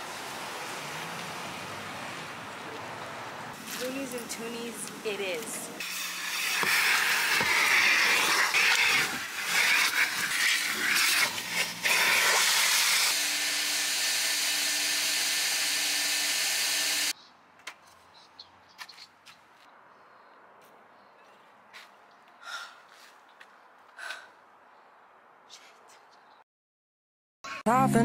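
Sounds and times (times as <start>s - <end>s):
vacuum cleaner running: 5.9s - 17.1s.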